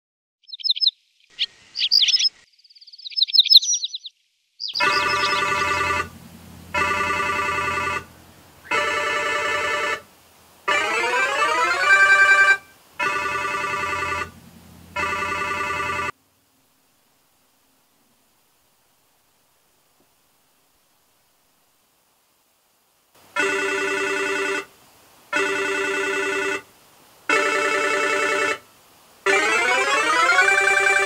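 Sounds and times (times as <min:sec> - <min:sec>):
birds chirping: 0:00.4 - 0:08.8
smartphone ringtone: 0:04.8 - 0:06.1, 0:06.7 - 0:08.1, 0:08.7 - 0:10.0, 0:10.7 - 0:14.3, 0:14.9 - 0:16.1, 0:23.4 - 0:24.7.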